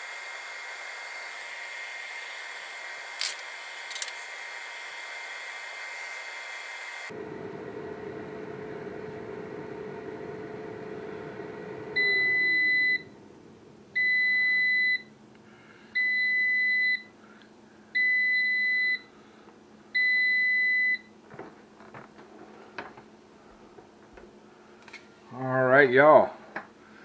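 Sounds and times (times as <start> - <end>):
air fryer fan hum: 0.0 - 17.0
long beeps: 11.9 - 13.2, 14.0 - 15.1.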